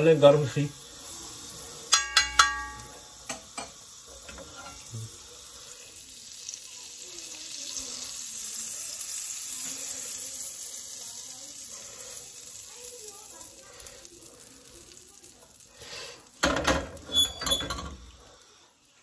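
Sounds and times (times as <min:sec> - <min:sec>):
ghee sizzling on hot pan: 0:00.0 - 0:19.0
metal utensils clinking: 0:01.9 - 0:05.0, 0:16.4 - 0:18.2.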